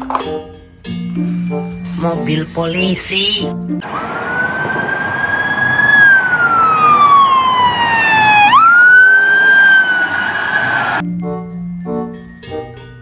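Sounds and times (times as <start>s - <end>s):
road noise: 1.6s - 11.0s
police siren wailing: 3.8s - 11.0s.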